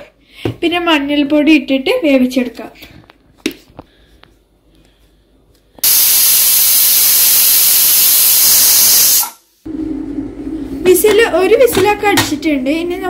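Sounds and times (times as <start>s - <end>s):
pressure cooker steam hiss: 5.8s - 9.4s.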